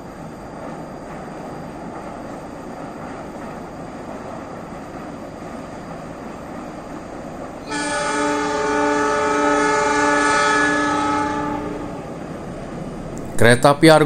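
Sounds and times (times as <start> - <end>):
locomotive horn blast: 7.6 - 12.1.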